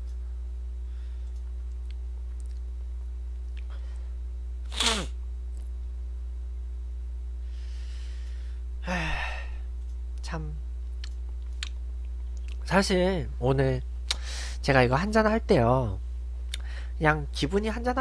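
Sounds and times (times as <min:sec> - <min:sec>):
low electrical hum: 0:00.0 - 0:18.0
man's loud vocal burst: 0:04.7 - 0:05.2.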